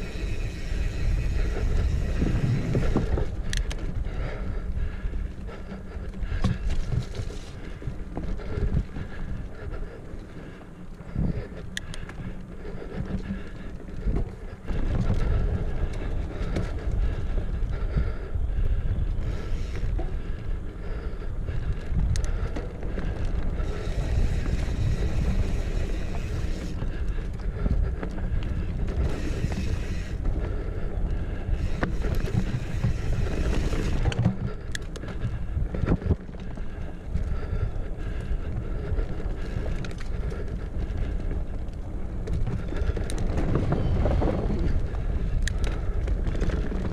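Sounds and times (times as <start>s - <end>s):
bike rattles and knocks: 0.0s - 9.4s, 10.5s - 18.2s, 19.2s - 46.9s
wind buffeting microphone: 0.0s - 46.9s.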